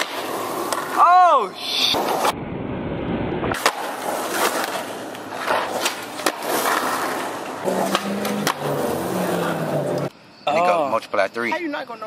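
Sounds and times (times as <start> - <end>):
skateboard clacks: 0.0 - 1.0, 3.5 - 8.9
skateboard wheels rolling on asphalt: 0.0 - 10.1.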